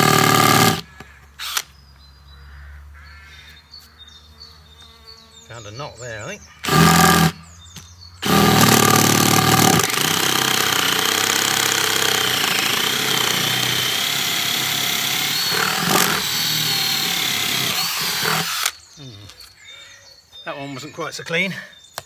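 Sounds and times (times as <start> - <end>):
drill bit grinding on screw: 0.0 - 0.8, 6.6 - 7.4, 8.2 - 18.8
power drill boring through wood: 0.0 - 0.8, 6.6 - 7.4, 8.2 - 18.8.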